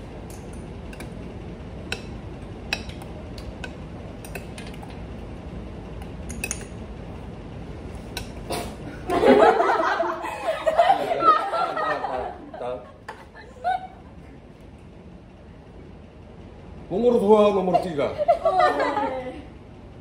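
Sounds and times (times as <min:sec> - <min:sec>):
room hum: 0:00.0 - 0:20.0
group laughing loudly: 0:09.0 - 0:14.2, 0:17.6 - 0:19.5.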